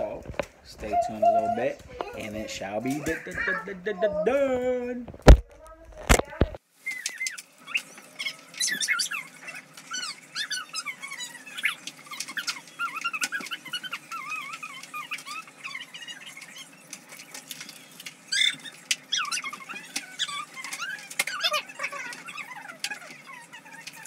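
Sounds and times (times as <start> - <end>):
high wavering squeaks: 6.8 - 24.0.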